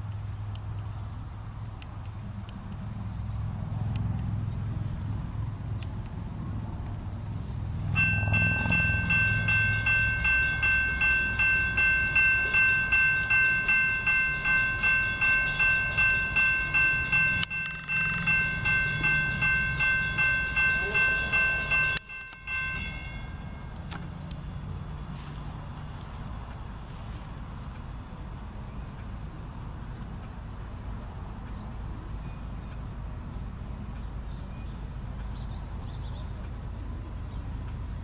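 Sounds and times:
diesel locomotive rumble: 0.0s - 38.0s
crossing bell ringing: 7.9s - 24.0s.

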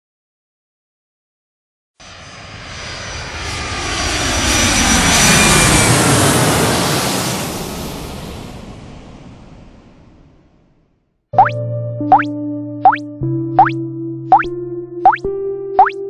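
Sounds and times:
jet airplane flying by: 2.0s - 10.6s.

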